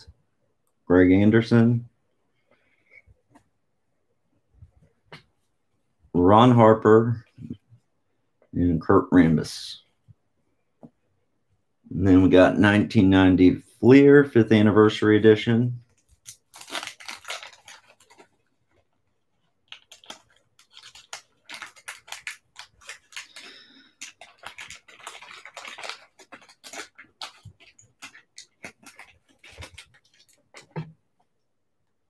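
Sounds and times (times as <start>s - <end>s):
paper wrapper crinkling: 15.8s - 31.0s.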